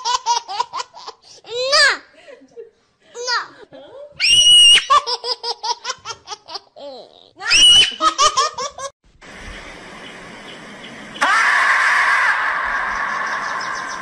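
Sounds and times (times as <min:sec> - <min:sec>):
steady hiss: 0:09.1 - 0:11.3.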